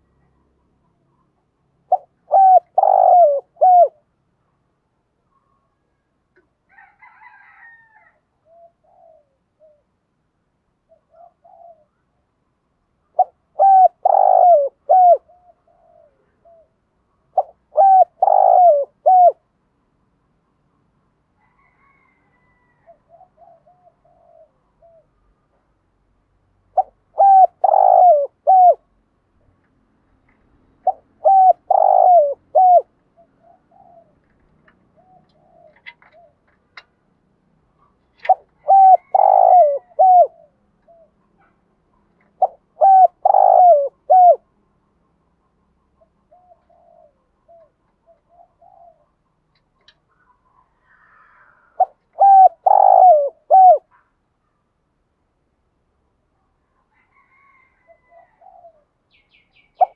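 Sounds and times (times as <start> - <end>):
dove cooing: 1.2 - 4.1, 8.4 - 9.9, 10.9 - 12.0, 13.1 - 19.4, 22.7 - 25.2, 26.7 - 28.9, 30.8 - 36.6, 37.8 - 44.5, 46.0 - 49.2, 50.2 - 54.1, 57.0 - 59.0, 59.7 - 59.9.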